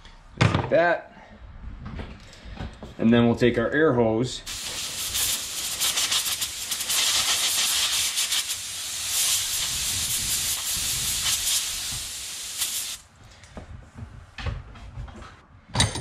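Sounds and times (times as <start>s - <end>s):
compressed air hissing: 4.5s - 13.1s.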